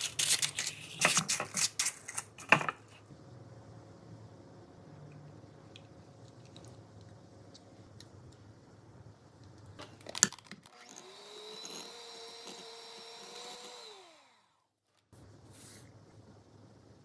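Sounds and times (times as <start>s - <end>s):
electric hand mixer whirring: 10.7s - 14.6s.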